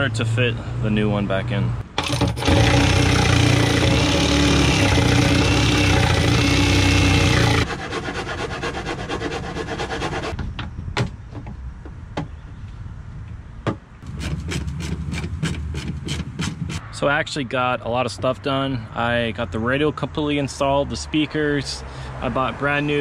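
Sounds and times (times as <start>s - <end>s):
sharp clicks and knocks: 1.9s - 7.7s, 13.6s - 16.8s
hand file rasping: 2.0s - 10.4s, 14.0s - 16.8s
jigsaw cutting fibreglass: 2.0s - 10.4s.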